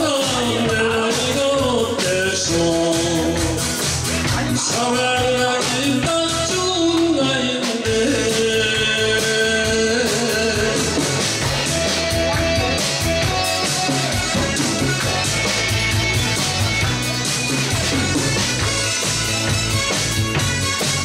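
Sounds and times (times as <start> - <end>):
man singing into microphone: 0.0 - 11.4
backing music with drum beat: 0.0 - 21.0.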